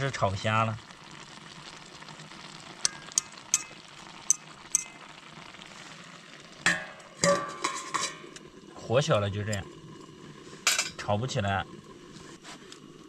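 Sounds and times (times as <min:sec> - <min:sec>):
faint simmering: 0:00.0 - 0:13.0
metal utensil scraping pot: 0:02.8 - 0:05.0, 0:06.7 - 0:08.4, 0:10.6 - 0:11.0.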